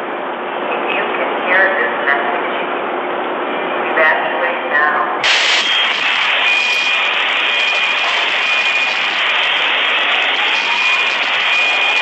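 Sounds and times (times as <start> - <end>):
high alarm tone beeping: 5.2 - 12.0
loud rushing noise: 5.2 - 12.0.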